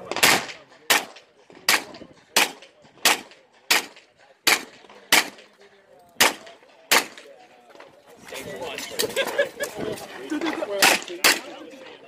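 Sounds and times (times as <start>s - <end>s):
handgun shots: 0.1s - 5.5s, 6.2s - 7.3s.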